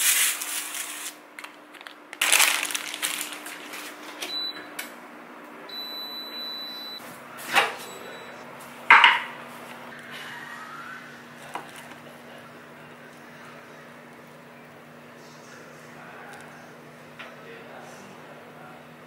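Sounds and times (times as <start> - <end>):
appliance beeping: 3.9 - 4.9, 5.7 - 9.2.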